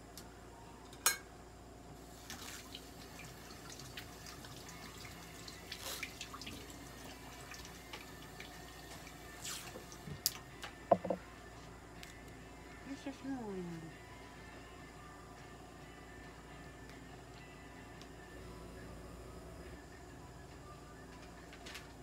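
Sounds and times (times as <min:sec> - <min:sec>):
tape crinkling and clicking: 0:21.1 - 0:22.0.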